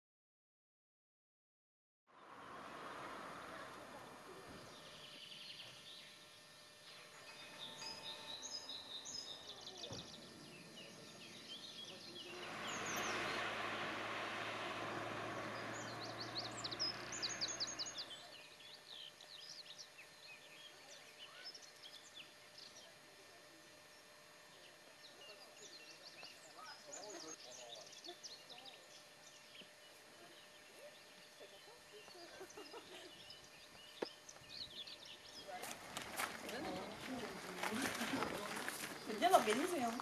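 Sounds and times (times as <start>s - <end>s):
small birds chirping: 3.5s - 40.0s
rushing noise with low hum: 11.1s - 19.1s.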